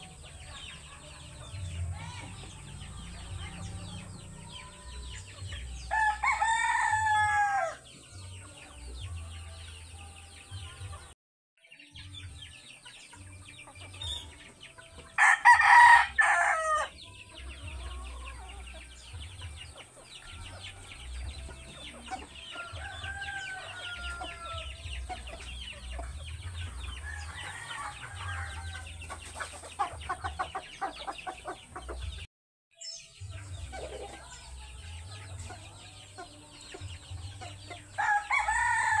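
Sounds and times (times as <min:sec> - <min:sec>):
chicken clucking: 0:00.0 - 0:11.2, 0:12.0 - 0:32.3, 0:33.2 - 0:39.0
rooster crowing: 0:05.9 - 0:07.8, 0:15.2 - 0:16.9, 0:22.6 - 0:24.7, 0:38.0 - 0:39.0.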